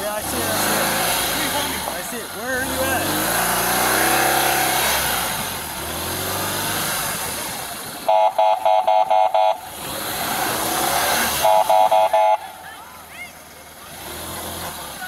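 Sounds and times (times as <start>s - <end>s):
motorcycle engine accelerating: 0.0s - 15.0s
short electronic beeps: 8.1s - 9.6s, 11.4s - 12.4s.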